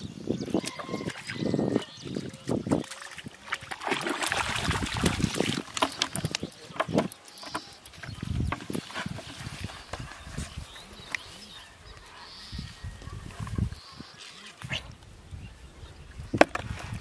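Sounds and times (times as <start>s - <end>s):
fish thrashing and splashing: 0.7s - 8.1s.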